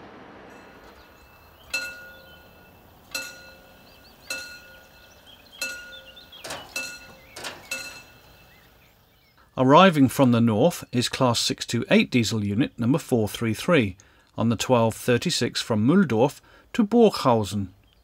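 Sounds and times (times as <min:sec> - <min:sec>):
bell struck: 0:00.5 - 0:08.8.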